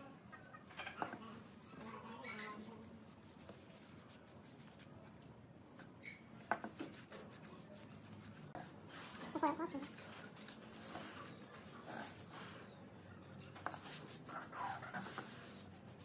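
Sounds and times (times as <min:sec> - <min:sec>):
paintbrush bristles rubbing wood: 0:00.7 - 0:04.9, 0:06.4 - 0:12.3, 0:13.6 - 0:16.0.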